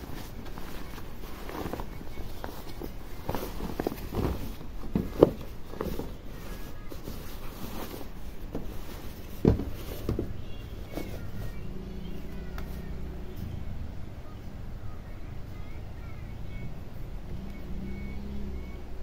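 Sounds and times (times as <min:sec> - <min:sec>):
fabric rustling: 0:00.0 - 0:13.2
low steady hum: 0:00.0 - 0:19.0.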